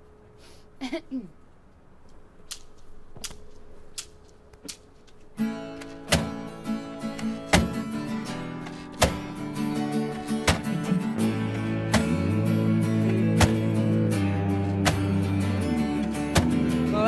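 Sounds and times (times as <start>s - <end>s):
strummed electric guitar: 5.4s - 17.0s
drums hitting heavily: 10.4s - 10.9s.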